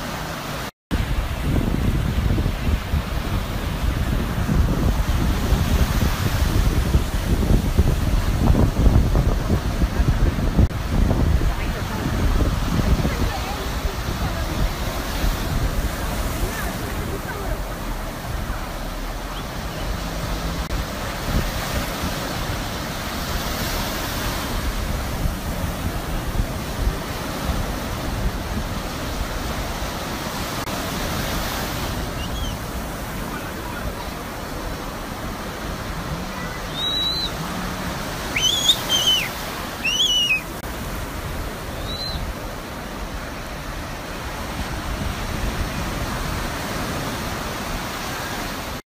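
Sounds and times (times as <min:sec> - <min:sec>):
surf breaking on shore: 0:00.0 - 0:48.8
short high-pitched cries: 0:38.4 - 0:40.4.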